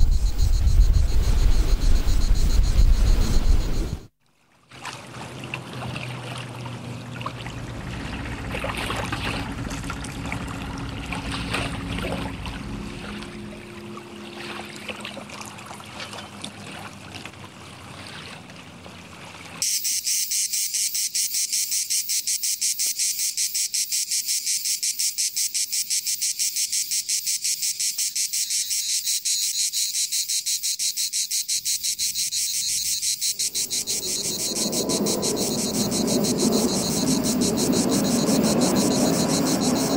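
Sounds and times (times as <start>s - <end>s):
cicadas buzzing: 0.0s - 4.1s, 19.6s - 39.9s
low rumble: 0.0s - 4.1s, 33.4s - 39.9s
harbour ambience: 5.4s - 19.6s, 32.4s - 39.9s
low steady hum: 6.9s - 16.5s.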